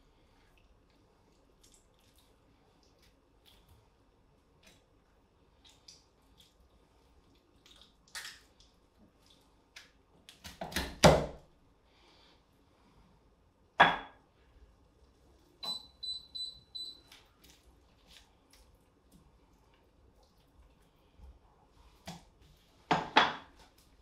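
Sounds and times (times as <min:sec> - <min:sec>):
wet squelching of meat torn: 0:05.6 - 0:10.6.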